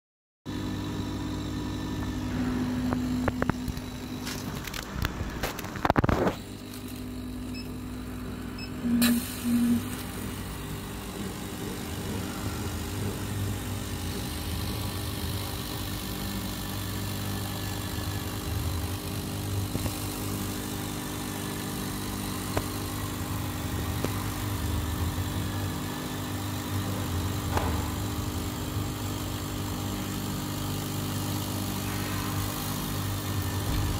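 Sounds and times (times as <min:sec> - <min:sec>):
laser cutter humming and hissing: 0:00.5 - 0:33.9
short beeps: 0:08.6 - 0:09.9.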